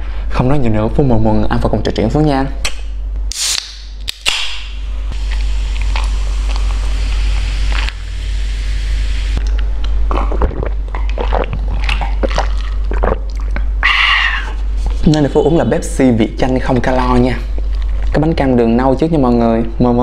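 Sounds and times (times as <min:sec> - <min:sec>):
can cracked open with hiss: 0:03.3 - 0:04.7
person gulping: 0:09.4 - 0:13.8.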